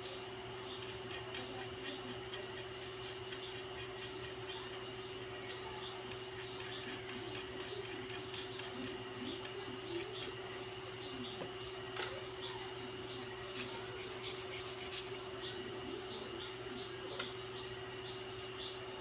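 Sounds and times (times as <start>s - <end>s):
small brush scrubbing metal part: 6.3s - 9.0s, 13.5s - 15.2s.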